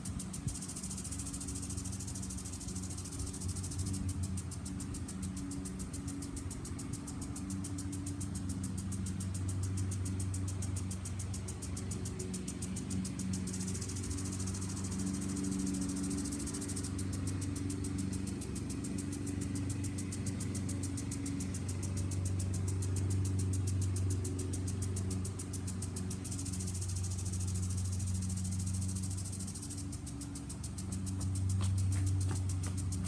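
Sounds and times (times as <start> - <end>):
sprinkler ticking hiss: 0.0 - 33.0
lawn mower engine running: 10.9 - 33.0.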